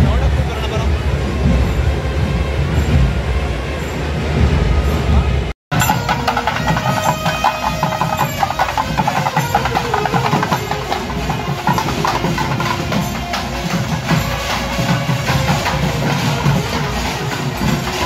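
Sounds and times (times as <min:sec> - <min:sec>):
frame drums beaten with sticks: 0:05.7 - 0:18.0.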